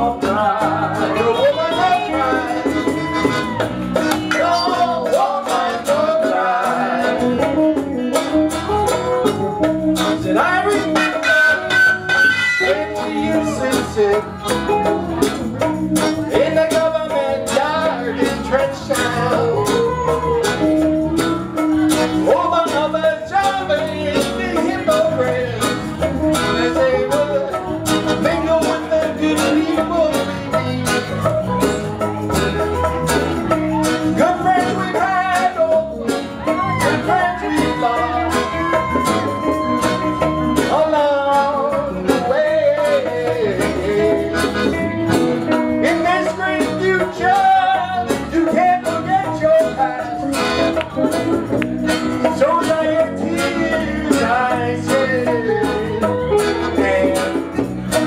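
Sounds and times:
people singing: 0.0 - 7.9, 10.1 - 14.7, 16.1 - 20.1, 22.2 - 30.8, 34.2 - 39.7, 40.4 - 44.6, 52.2 - 58.0
acoustic guitar: 0.0 - 58.0
percussive beat: 0.0 - 58.0
saxophone: 0.6 - 5.2, 29.9 - 42.8.

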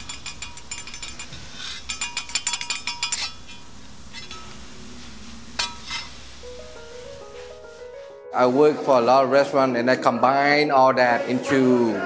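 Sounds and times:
metal spatulas clinking: 0.0 - 4.6, 5.6 - 6.1
sharp metal clanks: 0.0 - 4.7, 5.5 - 6.2.

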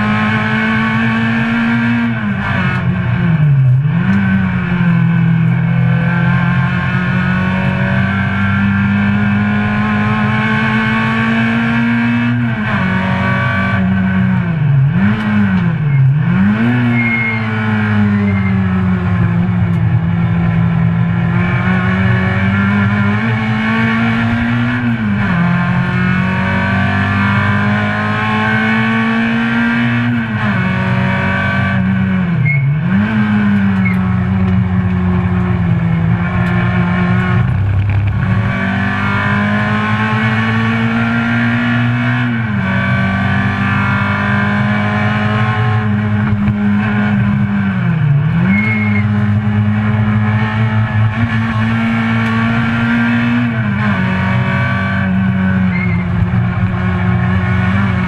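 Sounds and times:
car engine revving at full throttle: 0.0 - 58.0.

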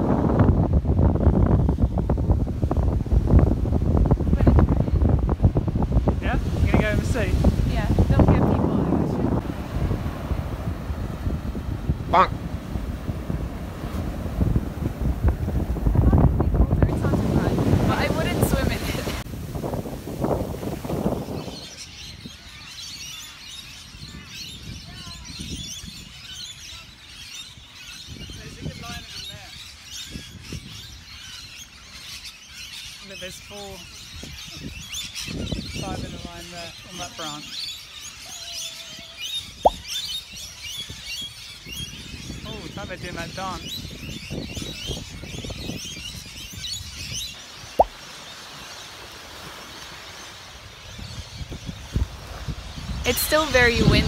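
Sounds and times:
low wind rumble: 0.0 - 22.7, 33.8 - 37.5
wind rumble on microphone: 0.0 - 54.0
birds chattering and squeaking: 3.2 - 54.0.

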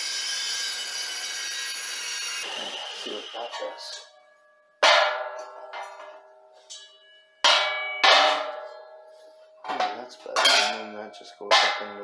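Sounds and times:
metal clanking and ringing: 2.4 - 12.0.

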